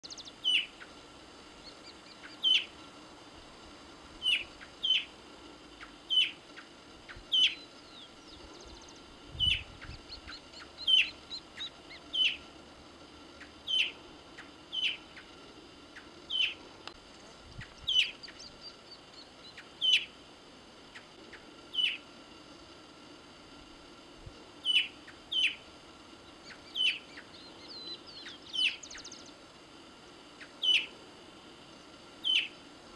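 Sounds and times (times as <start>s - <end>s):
bird whistling: 0.0s - 0.9s, 1.6s - 2.7s, 4.2s - 5.1s, 5.8s - 12.4s, 13.4s - 14.0s, 14.7s - 15.3s, 16.0s - 16.6s, 19.4s - 20.1s, 21.3s - 22.0s, 24.6s - 25.6s, 26.4s - 29.2s, 30.4s - 30.9s, 32.2s - 32.6s.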